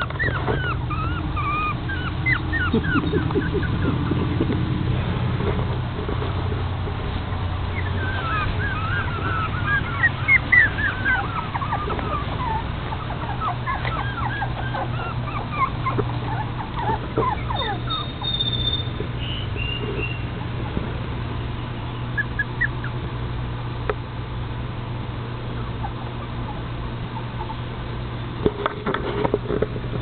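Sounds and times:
puppies squeaking and whimpering: 0.0 - 4.7, 7.4 - 20.8, 22.0 - 23.0, 25.6 - 27.8
steady low hum: 0.0 - 30.0.

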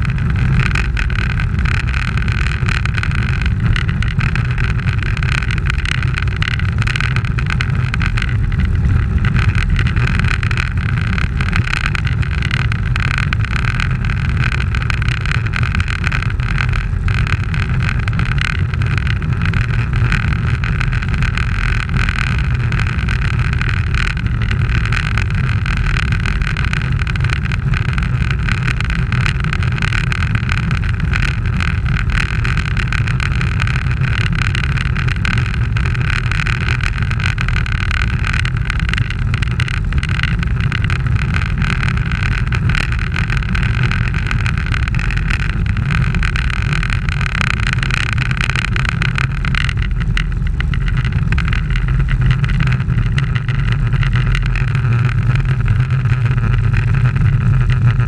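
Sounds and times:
bicycle tyre noise on asphalt: 0.0 - 58.0
road rumble: 0.0 - 58.0.

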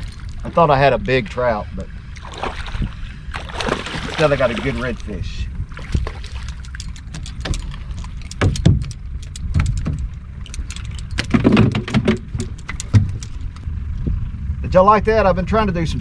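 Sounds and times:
wind rumbling on microphone: 0.0 - 16.0
fish splashing at surface: 2.2 - 5.1
sharp clicks: 6.4 - 11.3.

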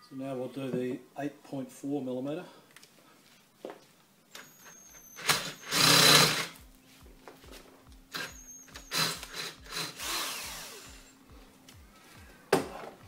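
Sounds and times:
electric drill boring metal: 4.4 - 6.6, 8.1 - 11.2.

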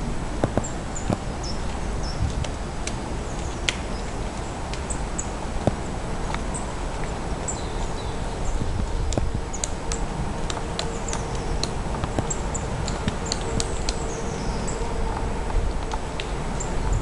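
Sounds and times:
steady low rumble: 0.0 - 17.0
small birds calling: 7.4 - 15.2.

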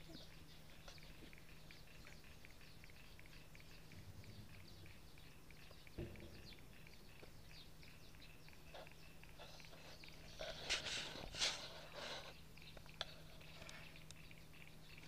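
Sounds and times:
high chirps of marsh wildlife: 0.0 - 15.0
soft knock: 6.0 - 6.6.

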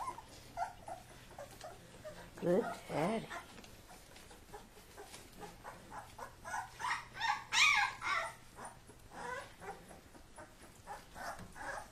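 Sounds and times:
puppies yipping and barking: 0.0 - 11.9
puppy high yelp: 4.9 - 11.9.

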